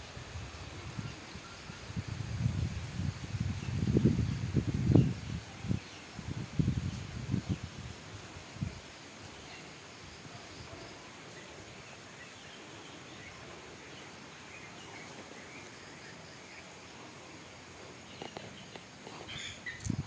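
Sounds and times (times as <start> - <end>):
outdoor background hiss: 0.0 - 20.0
faint bird chirps: 9.3 - 20.0.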